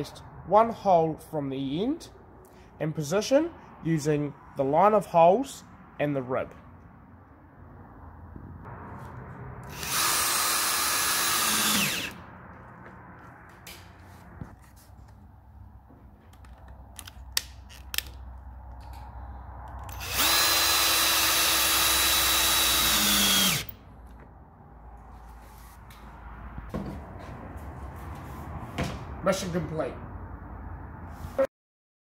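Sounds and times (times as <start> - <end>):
battery drill driving screws: 9.6 - 12.2, 19.9 - 23.7
small handling clicks: 16.3 - 20.0.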